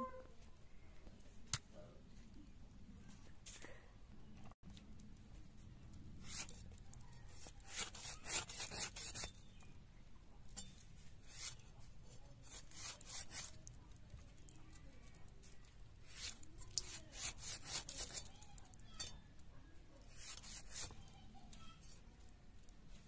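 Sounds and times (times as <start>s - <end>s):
hands scraping raw chicken skin: 6.2s - 9.6s, 11.2s - 11.6s, 12.4s - 13.8s, 16.0s - 18.8s, 20.0s - 21.0s.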